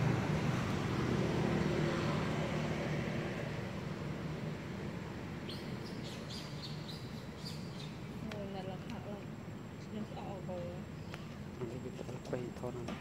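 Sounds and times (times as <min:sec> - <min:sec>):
small bird chirping: 0:05.4 - 0:08.2.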